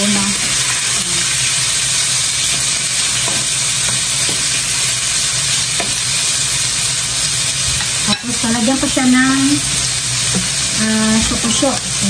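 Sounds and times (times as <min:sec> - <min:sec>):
meat sizzling in oil: 0:00.0 - 0:12.0
spatula tapping pan: 0:02.5 - 0:04.5, 0:05.7 - 0:06.0.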